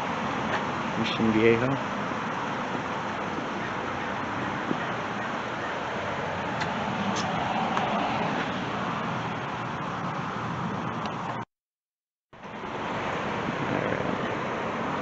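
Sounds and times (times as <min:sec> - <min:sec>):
distant road traffic: 0:00.0 - 0:11.5, 0:12.4 - 0:15.0
wind on microphone: 0:12.9 - 0:15.0.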